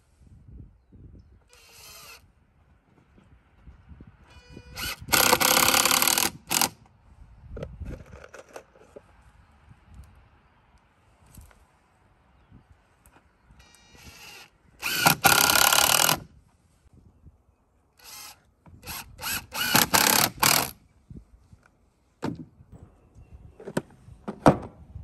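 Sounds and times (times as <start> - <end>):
cordless drill driving screws: 1.5 - 2.2, 4.3 - 6.8, 13.6 - 16.2, 18.0 - 20.8.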